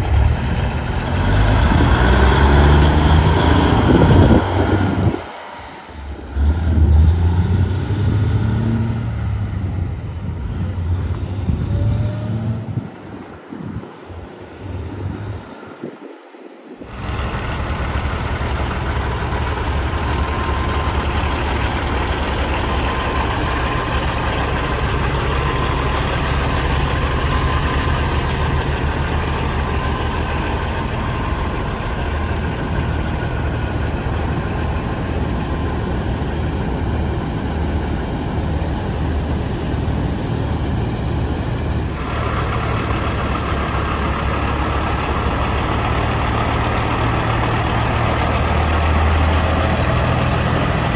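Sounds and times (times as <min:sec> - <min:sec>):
truck diesel engines idling: 0:00.0 - 0:16.0, 0:16.6 - 0:50.9.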